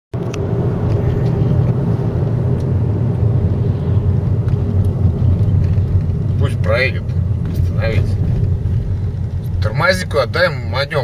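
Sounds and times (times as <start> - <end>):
car engine and tyre rumble: 0.1 - 11.0
faint rattles: 4.4 - 10.2.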